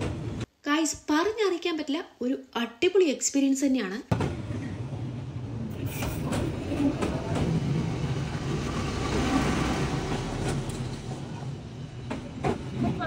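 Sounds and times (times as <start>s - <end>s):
train wheels rumbling on rails: 4.1s - 13.0s.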